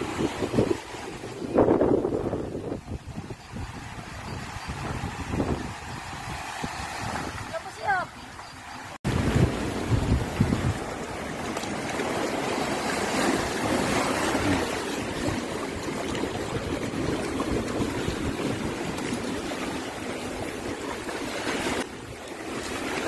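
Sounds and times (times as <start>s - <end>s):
seawater washing over pebbles: 9.2s - 23.0s.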